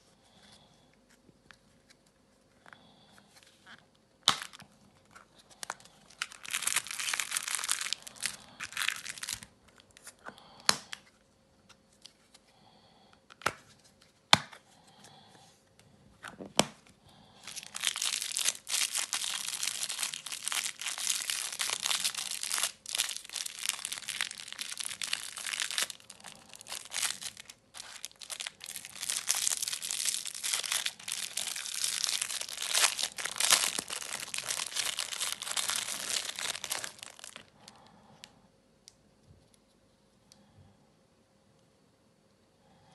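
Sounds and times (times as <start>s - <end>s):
plastic packaging crinkling: 4.2s - 10.1s, 17.4s - 37.6s.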